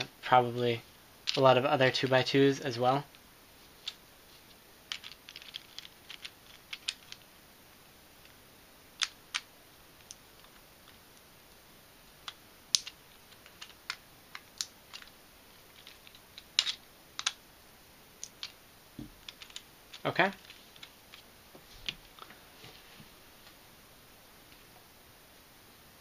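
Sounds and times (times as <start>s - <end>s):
plastic pieces clicking: 4.9s - 7.2s, 9.0s - 11.0s, 12.2s - 17.4s, 18.2s - 18.6s, 19.2s - 21.2s.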